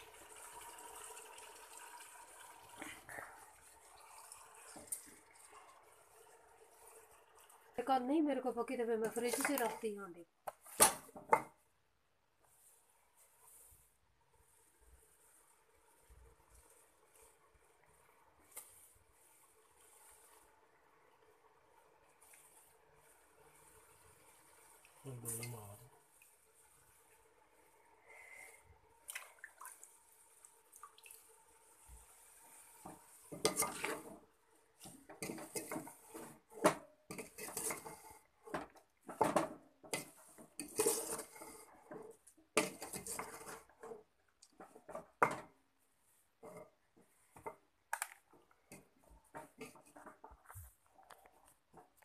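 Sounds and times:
spatula scraping a metal pot: 0:09.0 - 0:09.8, 0:32.0 - 0:44.1.

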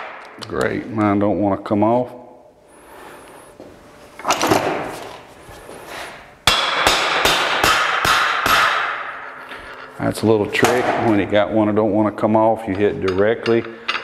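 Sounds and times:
hammer striking metal: 0:06.4 - 0:09.8.

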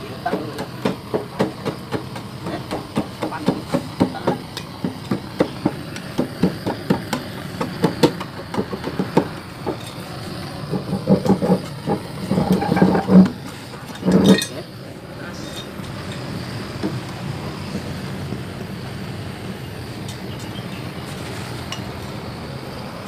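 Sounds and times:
scrapers scraping metal: 0:09.0 - 0:16.6.

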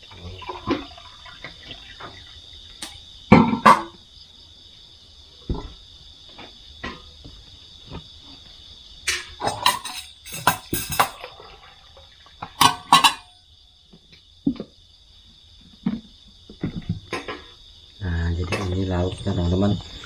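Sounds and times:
drink pouring into plastic mugs: 0:00.0 - 0:02.4
crickets chirping: 0:00.0 - 0:20.0
mugs knocking on table: 0:03.3 - 0:04.0.

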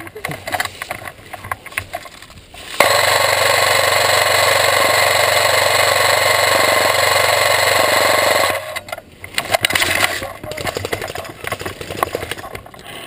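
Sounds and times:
electric gun full-auto burst: 0:02.8 - 0:08.9.

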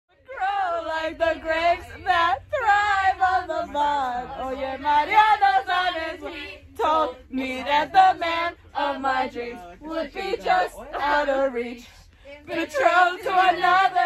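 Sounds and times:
bus rumble: 0:00.1 - 0:14.0
teenagers singing together: 0:00.2 - 0:14.0.

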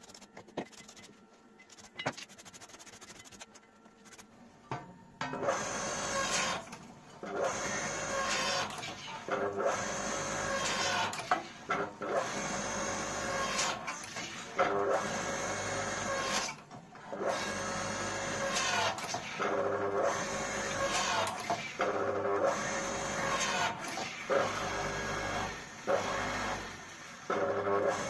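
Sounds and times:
hydraulic pump running: 0:05.3 - 0:11.2.

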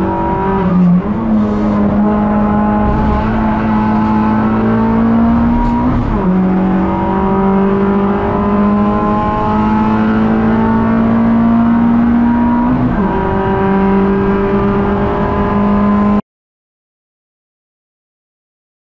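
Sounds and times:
race car engine at full throttle: 0:00.0 - 0:16.2.

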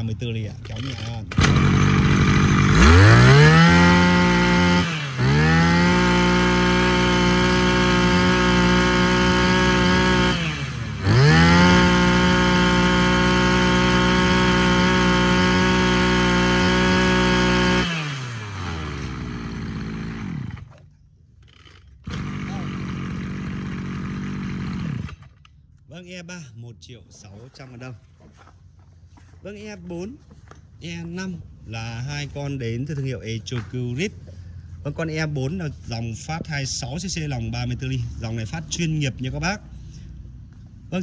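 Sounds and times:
brush cutter engine revving: 0:00.0 - 0:25.4.

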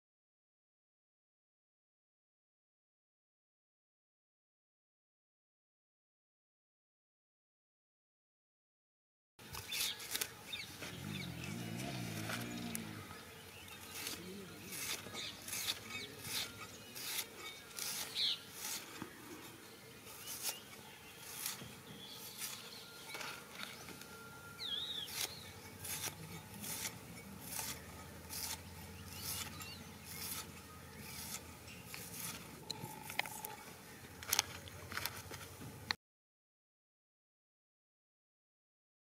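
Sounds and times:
onion being sliced on blade: 0:13.8 - 0:18.9, 0:20.1 - 0:22.6, 0:25.1 - 0:32.5.

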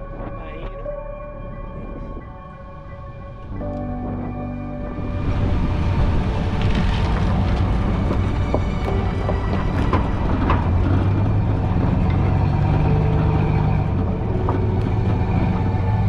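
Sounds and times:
pickup truck engine running: 0:03.6 - 0:16.0.

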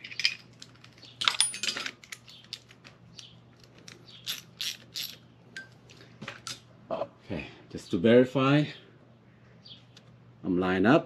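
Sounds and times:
metal tools clinking: 0:00.0 - 0:02.8
faint steady hum: 0:00.0 - 0:11.0.

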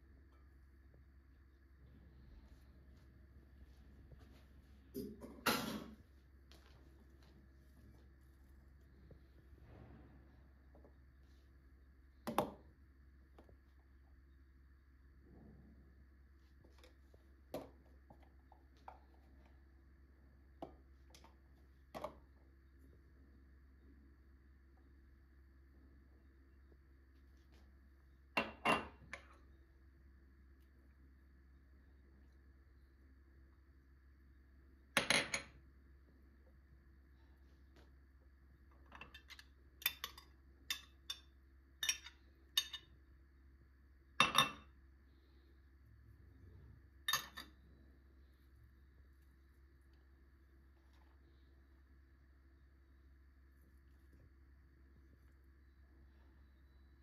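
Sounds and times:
low steady hum: 0:00.0 - 0:57.0
metal spoon clinking glass dishes: 0:39.0 - 0:42.9, 0:47.1 - 0:47.5.

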